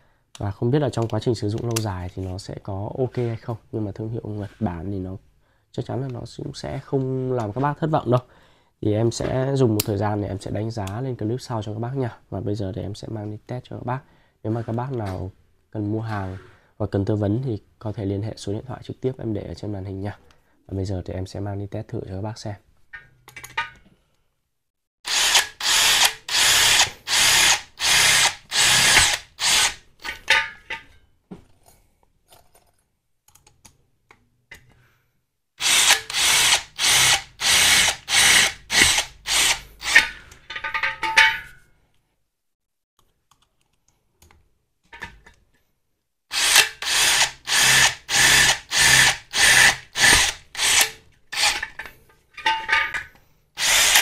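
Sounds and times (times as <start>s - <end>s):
cordless drill bursts: 25.0s - 29.8s, 35.6s - 40.1s, 46.3s - 51.6s, 53.6s - 54.0s.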